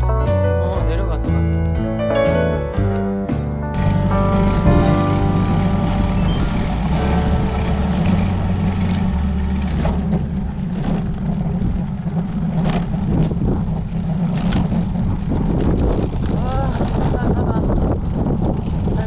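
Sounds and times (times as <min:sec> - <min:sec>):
wind buffeting microphone: 0:03.8 - 0:19.0.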